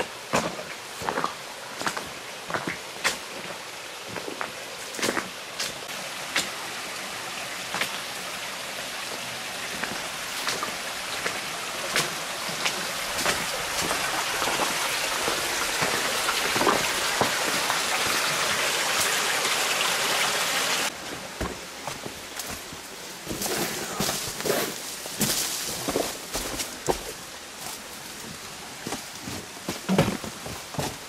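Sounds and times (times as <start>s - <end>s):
stream rushing over rocks: 0.0s - 31.0s
footsteps on rock: 11.3s - 17.4s, 20.9s - 31.0s.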